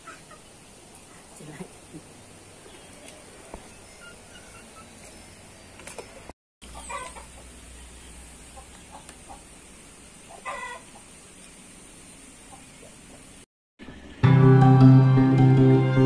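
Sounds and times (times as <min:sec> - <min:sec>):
chicken clucking: 0:06.6 - 0:09.5, 0:10.3 - 0:11.1.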